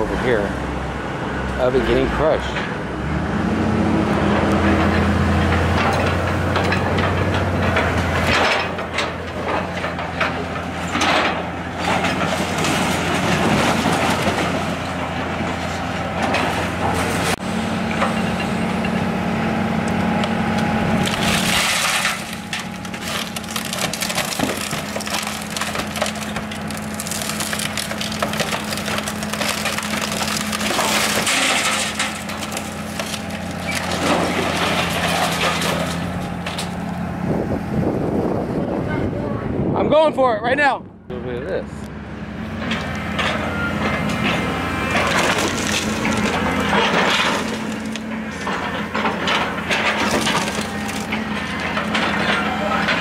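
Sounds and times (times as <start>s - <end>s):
excavator diesel engine running: 0.0s - 39.7s, 40.9s - 53.0s
car body crunching and cracking: 21.0s - 36.8s, 44.8s - 53.0s.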